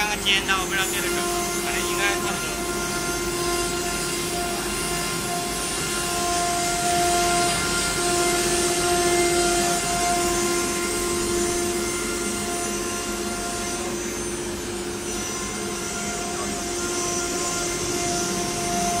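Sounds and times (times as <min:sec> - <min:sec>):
router bit cutting board: 0:00.0 - 0:19.0
router spindle whine: 0:00.0 - 0:19.0.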